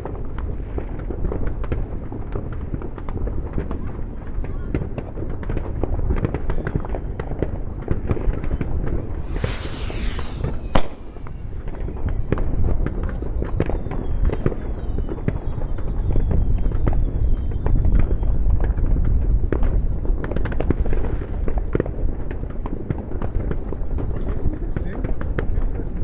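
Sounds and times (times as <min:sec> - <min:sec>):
fireworks crackling: 0:09.1 - 0:13.1
fireworks falling whistles: 0:09.1 - 0:18.6
sharp bang: 0:09.2 - 0:11.6.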